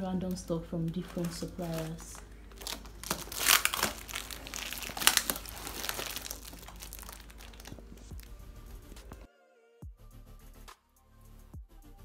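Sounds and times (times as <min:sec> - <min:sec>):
plastic parcels crinkling: 0:00.0 - 0:09.3
faint music: 0:00.0 - 0:12.0.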